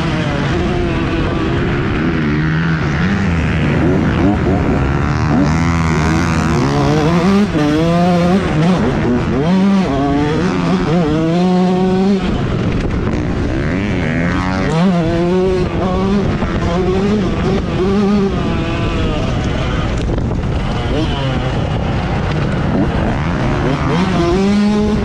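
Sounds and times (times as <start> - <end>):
motocross bike engine revving: 0.0 - 25.0.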